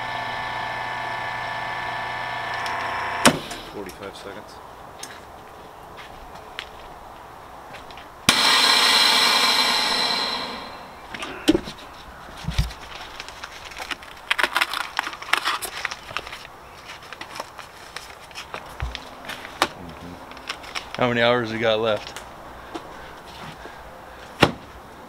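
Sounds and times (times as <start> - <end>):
vacuum sealer hissing: 0.0 - 3.8, 8.3 - 11.4
plastic bag crinkling: 12.2 - 18.7, 20.3 - 21.0.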